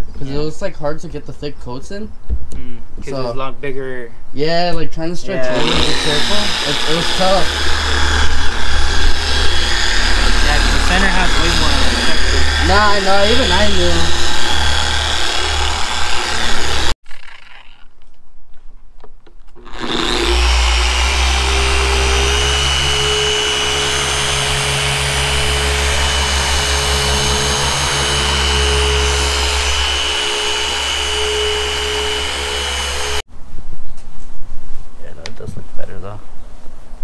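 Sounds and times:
electric car polisher whining: 5.4s - 17.0s, 19.6s - 33.3s.

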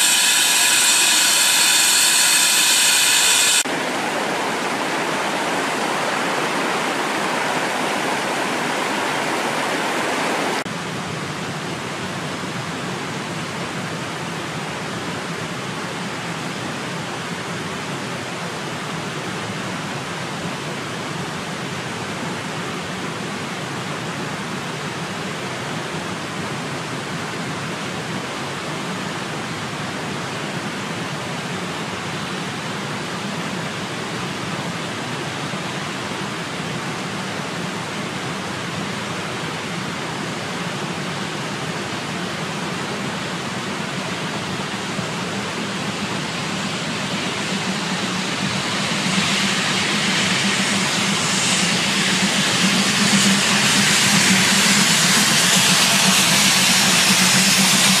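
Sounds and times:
high whine of stacked tones: 0.0s - 10.6s, 43.8s - 58.0s
steady rushing noise: 0.0s - 58.0s.

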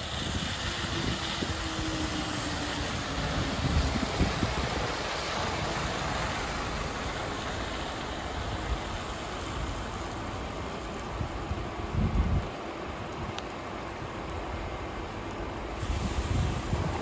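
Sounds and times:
bus engine humming: 0.0s - 11.5s
tyres hissing on wet road: 0.0s - 17.0s.

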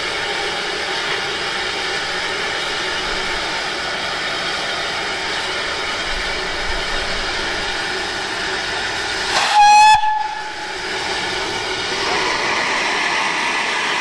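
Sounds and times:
steady steam hiss: 0.0s - 14.0s
steam locomotive whistle blast: 9.3s - 10.7s.

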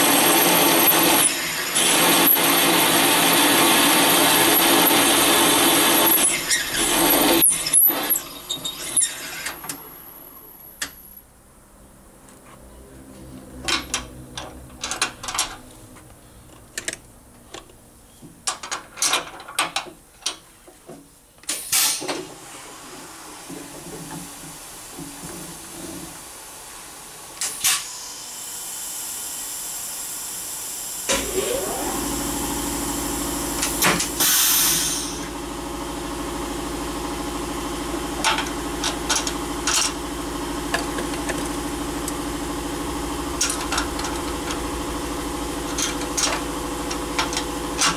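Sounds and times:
spindle motor humming: 31.1s - 34.2s
compressed air hissing: 33.8s - 35.3s.

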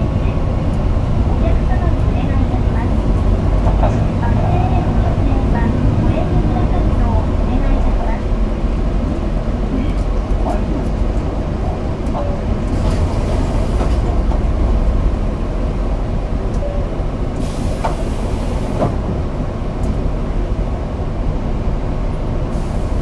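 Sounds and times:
bus engine and road rumble: 0.0s - 23.0s
hiss: 17.4s - 18.8s.

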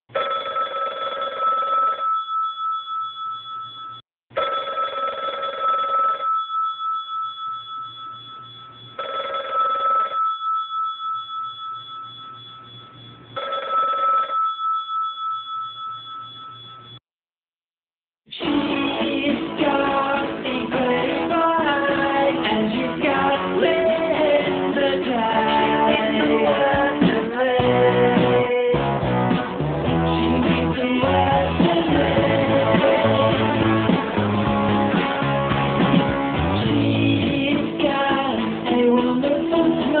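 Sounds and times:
telephone ringing: 0.1s - 17.0s.

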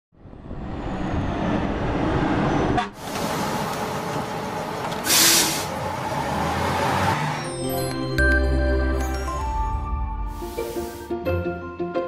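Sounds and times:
bus engine running: 1.2s - 8.1s
air-brake hiss: 5.0s - 5.8s, 10.3s - 11.2s.

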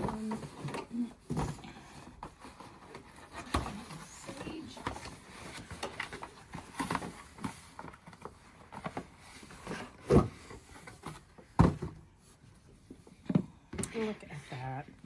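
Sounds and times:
cardboard boxes rustling: 0.0s - 14.1s
boxes thumping on table: 9.7s - 12.1s.

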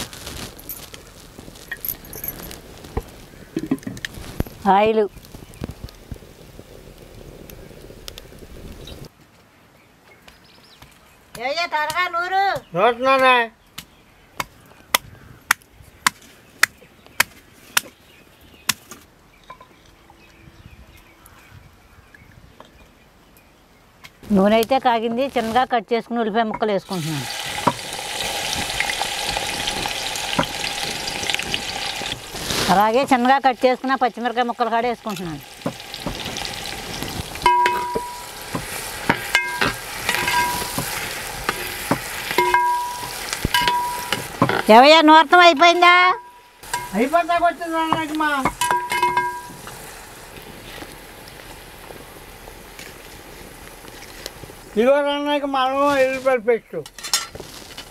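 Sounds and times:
onions sizzling in hot oil: 0.0s - 9.1s, 26.8s - 54.8s
ladle scraping metal pot: 26.9s - 33.3s, 35.1s - 44.8s, 45.6s - 47.1s, 48.0s - 49.8s
ladle strikes on pot: 37.4s - 41.0s, 41.9s - 44.6s, 47.9s - 49.6s.

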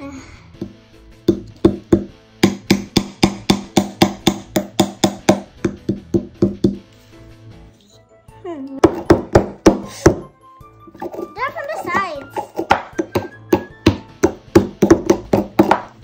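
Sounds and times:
quiet background music: 0.0s - 16.0s
hammer tapping chisel: 1.3s - 6.8s, 12.2s - 15.9s.

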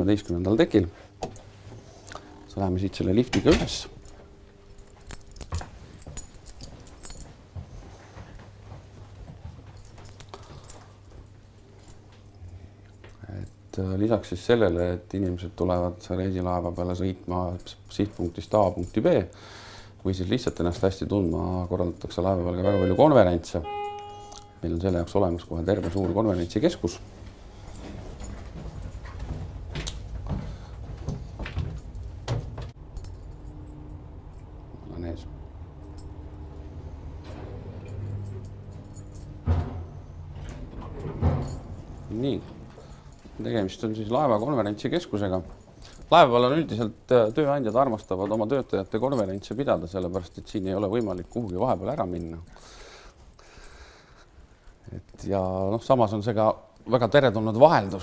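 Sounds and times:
steady low hum: 0.0s - 52.0s
footsteps with light clicks: 3.3s - 13.6s, 24.3s - 33.4s
low lift rumble: 22.6s - 45.6s
lift clicks and knocks: 37.2s - 43.4s.

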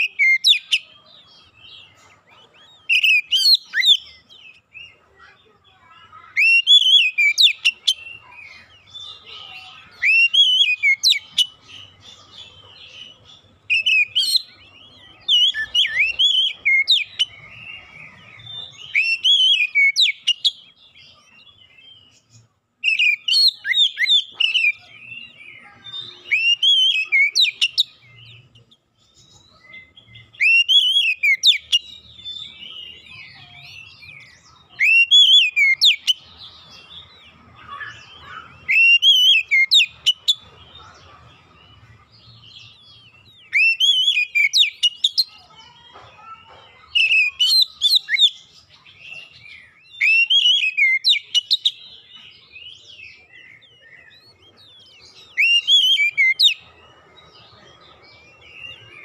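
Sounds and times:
bird whistling song: 0.0s - 0.9s, 2.6s - 4.6s, 6.1s - 12.2s, 13.6s - 20.7s, 22.8s - 28.6s, 29.3s - 36.3s, 37.6s - 40.5s, 42.7s - 45.5s, 46.9s - 56.7s.

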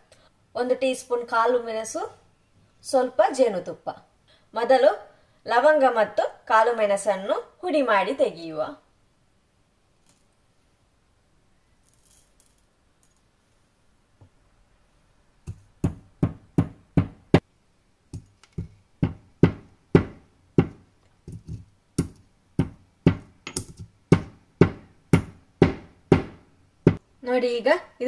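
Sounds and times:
stone pestle pounding in mortar: 15.5s - 17.3s, 18.6s - 27.0s.

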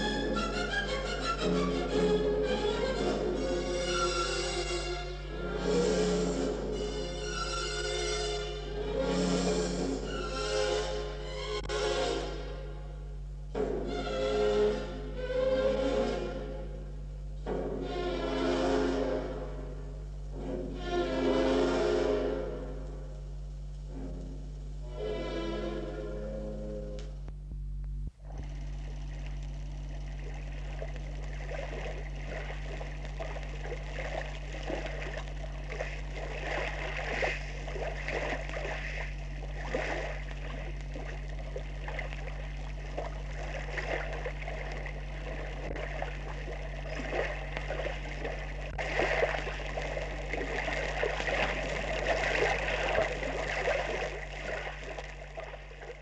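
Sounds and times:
low steady hum: 0.0s - 56.0s
water splashing and gurgling: 28.2s - 56.0s.

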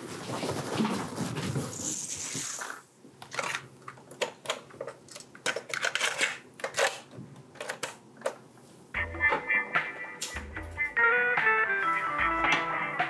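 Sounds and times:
cassette tapes clicking and clattering: 3.2s - 8.4s.

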